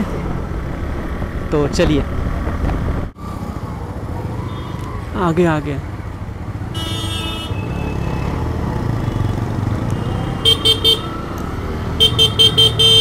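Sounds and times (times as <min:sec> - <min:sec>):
low rumble of traffic: 0:00.0 - 0:13.0
held vehicle horn: 0:06.7 - 0:08.4, 0:09.0 - 0:11.3, 0:12.0 - 0:13.0.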